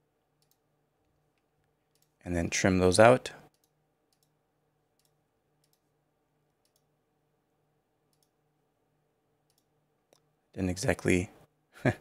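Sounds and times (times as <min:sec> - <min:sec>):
computer mouse clicks: 0:00.4 - 0:00.6, 0:01.3 - 0:02.2, 0:03.4 - 0:04.4, 0:05.0 - 0:05.9, 0:06.6 - 0:06.9, 0:08.1 - 0:08.4, 0:09.4 - 0:10.3.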